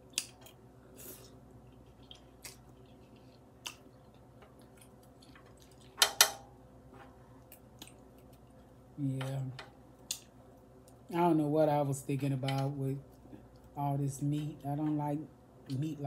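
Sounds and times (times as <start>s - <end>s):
quiet chewing: 0.0s - 6.0s, 7.1s - 8.8s, 13.0s - 15.0s.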